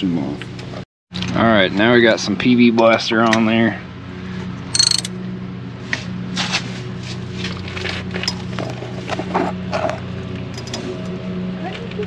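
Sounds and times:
socket wrench clicking: 4.7s - 5.1s.

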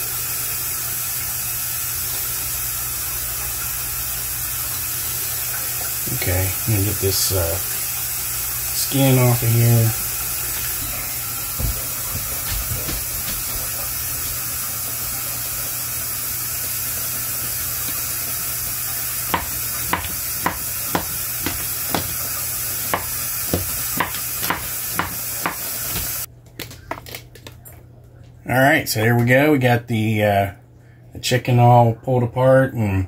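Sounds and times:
faucet running into sink: 0.0s - 26.3s
knife chopping on cutting board: 19.3s - 22.3s, 22.9s - 26.2s.

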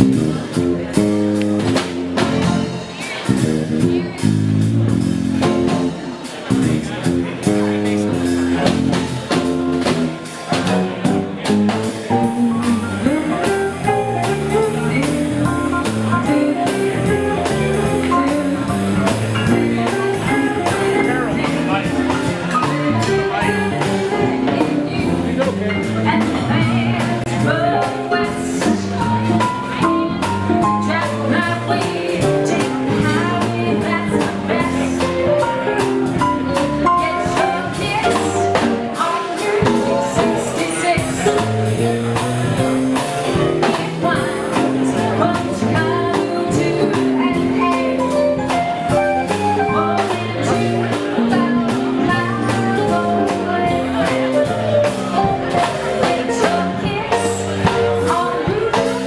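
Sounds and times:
steady drum beat: 0.0s - 59.0s
woman singing: 12.1s - 59.0s.

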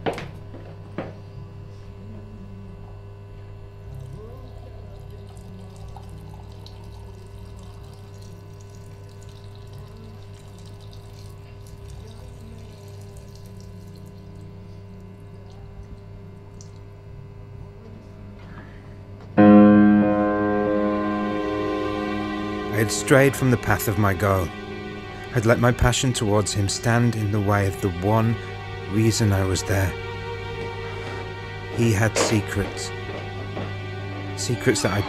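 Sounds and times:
tap water running into sink: 5.0s - 14.3s
low steady hum: 19.4s - 35.0s.

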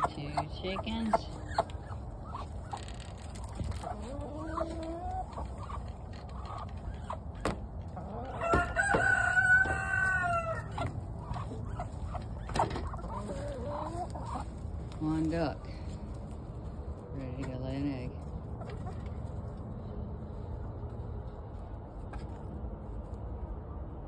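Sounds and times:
chickens clucking: 0.0s - 23.4s
long drawn-out chicken call: 8.1s - 10.9s.

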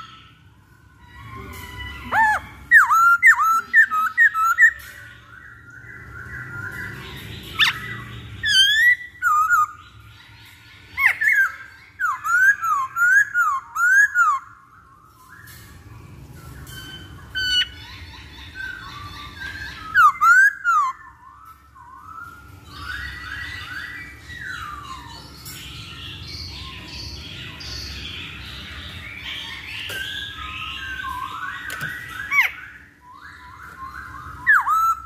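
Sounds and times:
laughingthrush whistled song: 29.5s - 35.0s.

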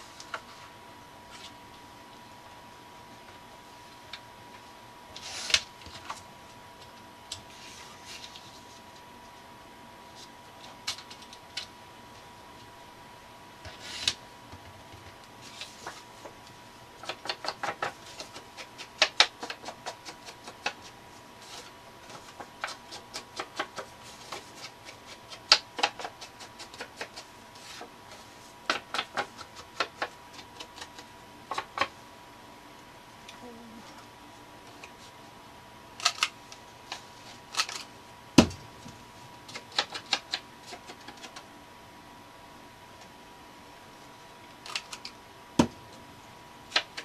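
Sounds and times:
paper handling clicks and taps: 10.6s - 11.7s, 13.7s - 31.9s, 36.0s - 41.5s, 44.6s - 45.8s, 46.7s - 47.0s.

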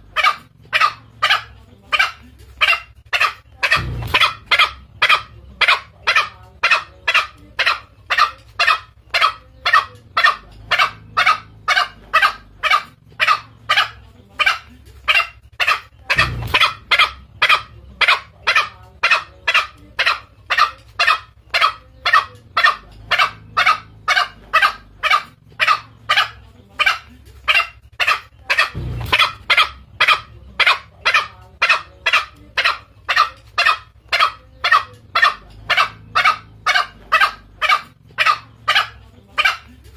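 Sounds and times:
dull low thumps: 3.7s - 6.0s.

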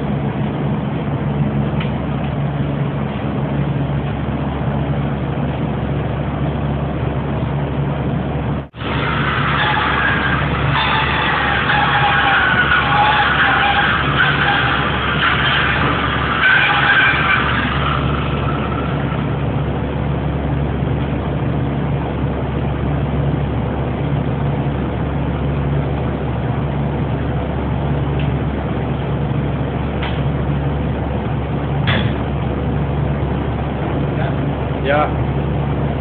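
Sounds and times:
machinery drone with wavering hum: 0.0s - 36.0s
even rushing noise: 8.4s - 20.4s.

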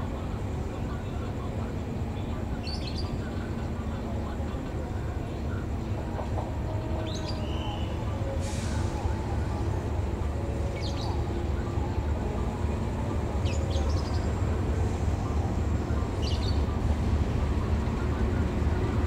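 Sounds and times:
locomotive engine rumbling: 0.0s - 19.0s.

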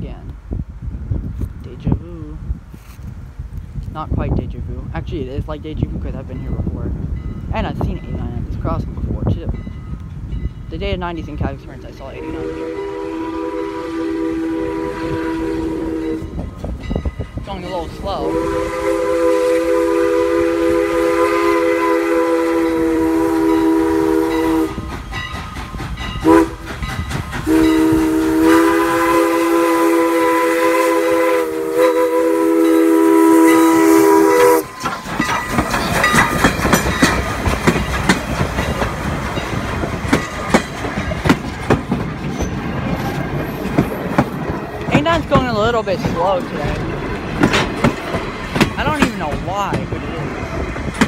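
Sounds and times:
steam locomotive whistle chord: 12.2s - 16.4s, 18.1s - 24.8s, 26.2s - 26.6s, 27.4s - 34.8s
train wheels clicking over rails: 24.3s - 28.7s, 34.4s - 51.0s.

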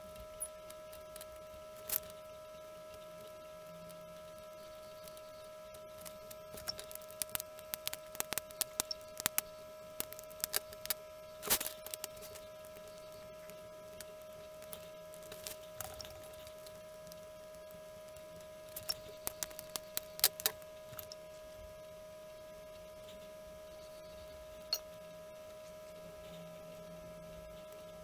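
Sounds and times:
high-pitched electrical hum: 0.0s - 28.0s
small clicks and taps: 2.9s - 21.2s.

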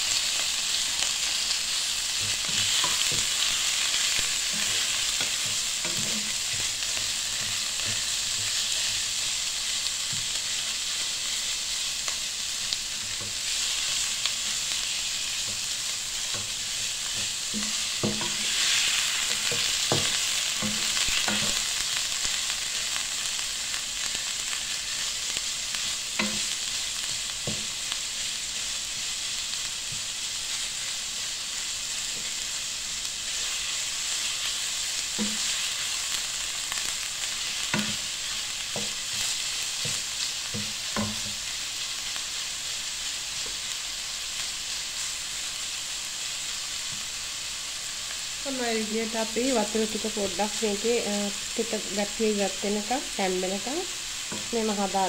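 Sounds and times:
meat sizzling in hot oil: 0.0s - 55.0s
wooden spoon knocking pan: 15.4s - 18.7s, 19.3s - 21.6s, 26.2s - 26.5s, 37.7s - 38.0s, 40.6s - 41.4s.

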